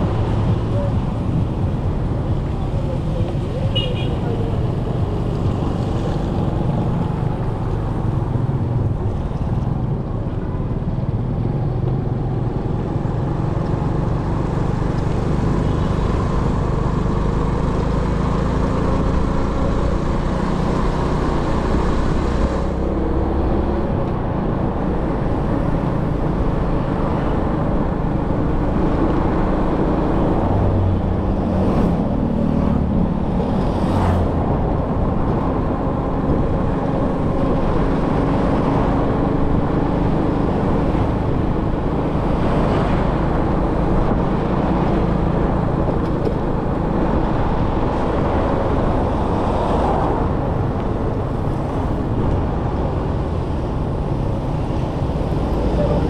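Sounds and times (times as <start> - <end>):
vehicle engine and road noise: 0.0 - 56.0.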